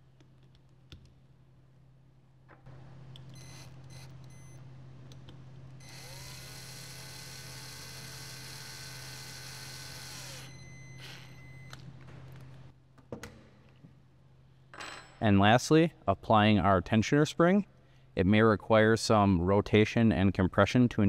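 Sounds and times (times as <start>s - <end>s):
cordless drill whirring: 5.8s - 11.4s.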